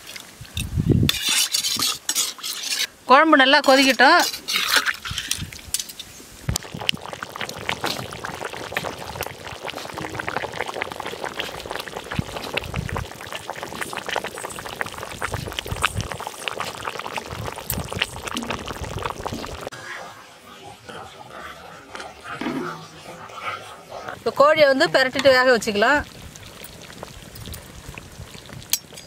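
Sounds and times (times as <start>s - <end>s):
curry bubbling in a pan: 6.5s - 29.0s.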